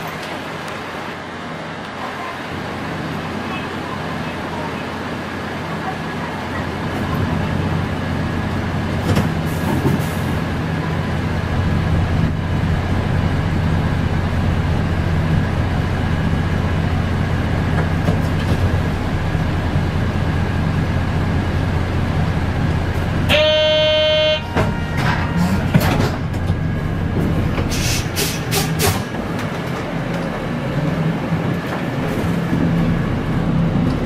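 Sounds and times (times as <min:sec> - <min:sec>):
bus diesel engine idling: 0:00.0 - 0:34.0
electronic buzzer tone: 0:23.3 - 0:24.9.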